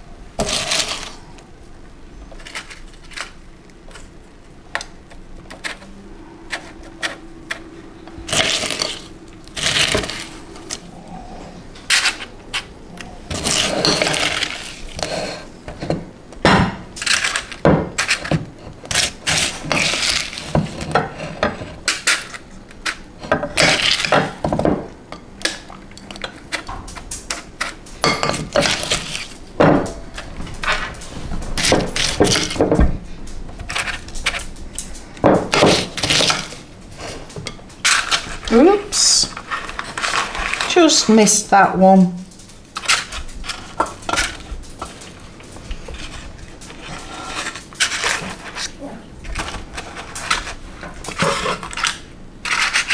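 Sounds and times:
spoon scraping a mixing bowl: 5.5 - 10.9, 13.3 - 16.0, 42.8 - 48.8.

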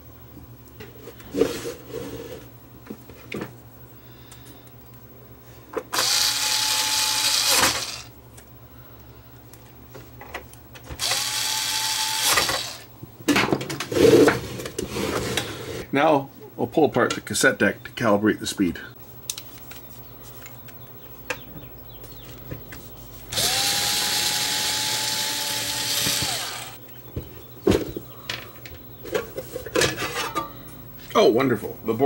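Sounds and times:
electric screwdriver whining: 5.9 - 8.1, 11.0 - 12.9, 23.3 - 26.8.

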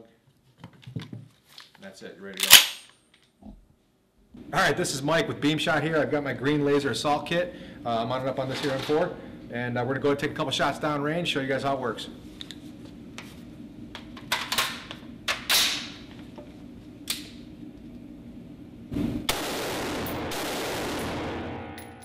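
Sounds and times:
rifle shots echoing: 19.3 - 22.0.

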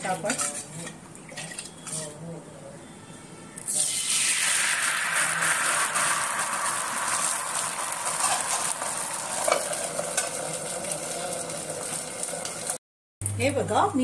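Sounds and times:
batter sizzling on a hot griddle: 3.8 - 12.8.

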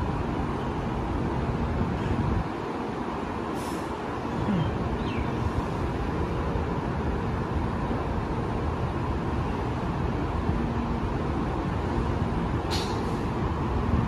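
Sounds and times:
stationary train humming: 0.0 - 14.0
short hiss: 3.6 - 3.9, 12.7 - 13.2.

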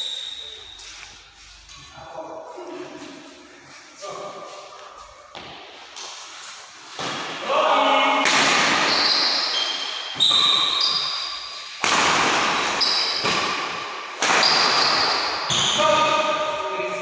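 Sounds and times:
shoe squeaks on court floor: 0.0 - 2.0, 8.7 - 11.8, 12.6 - 13.6, 14.3 - 16.1
racket hitting shuttlecock: 8.2 - 16.0.

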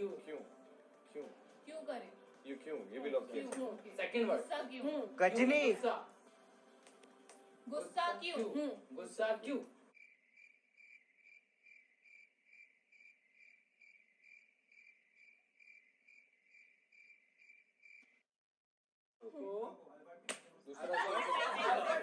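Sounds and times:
cricket chirping: 9.9 - 18.2.

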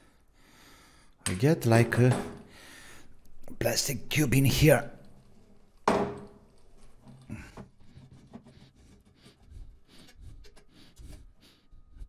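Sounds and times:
metal and plastic tubes rubbing: 6.4 - 12.0.

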